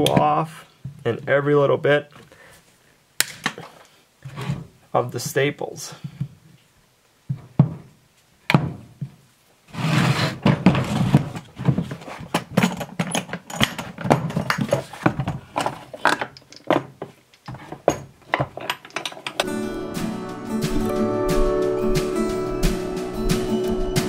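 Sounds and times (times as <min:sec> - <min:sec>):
plastic tool case clattering: 0:10.4 - 0:19.5.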